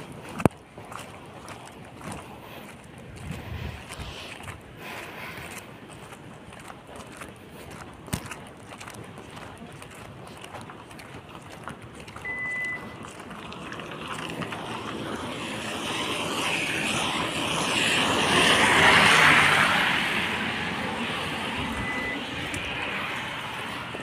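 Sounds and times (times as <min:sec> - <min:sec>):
short high beep: 0:12.2 - 0:12.9, 0:21.7 - 0:22.2
tyres hissing on wet road: 0:13.4 - 0:24.0.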